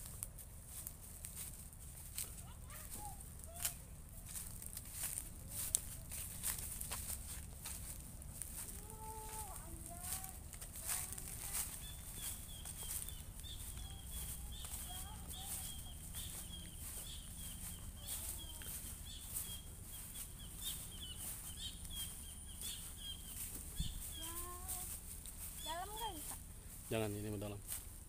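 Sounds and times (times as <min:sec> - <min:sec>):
footsteps on dry grass: 0:00.0 - 0:28.0.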